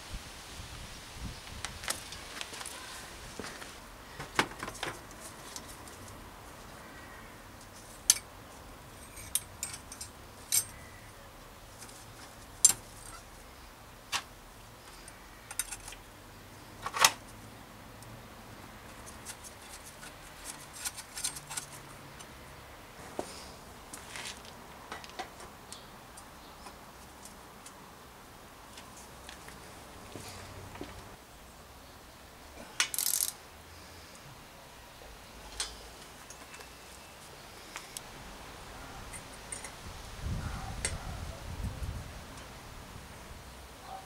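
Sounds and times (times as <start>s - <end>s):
metallic clicks of bike parts: 7.6s - 8.3s, 9.0s - 10.8s, 14.9s - 16.1s, 32.8s - 33.4s, 35.5s - 36.7s, 39.1s - 39.8s.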